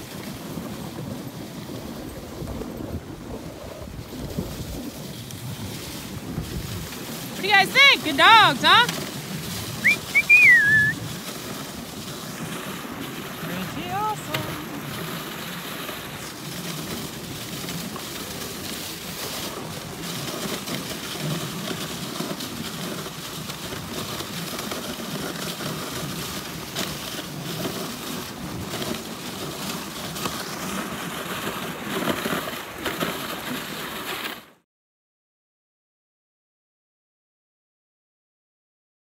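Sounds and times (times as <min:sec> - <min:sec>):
sled jolting knocks: 0:00.0 - 0:09.9, 0:11.0 - 0:34.4
sled runners scraping snow: 0:00.0 - 0:34.6.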